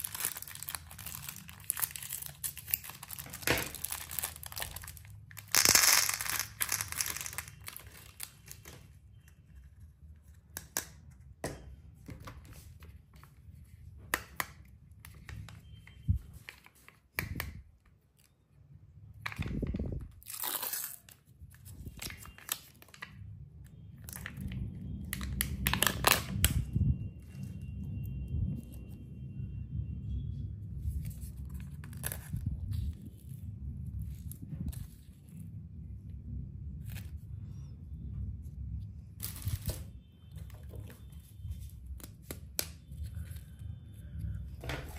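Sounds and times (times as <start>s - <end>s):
small candies pouring: 0.0s - 7.8s
plastic packaging crinkling: 0.0s - 8.9s.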